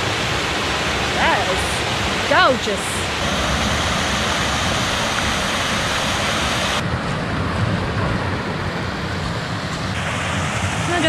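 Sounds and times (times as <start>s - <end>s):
waterfall rushing: 0.0s - 6.8s, 9.9s - 11.0s.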